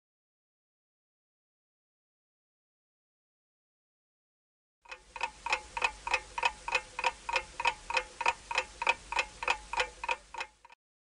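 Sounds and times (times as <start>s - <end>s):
clock tick-tock: 4.8s - 10.8s.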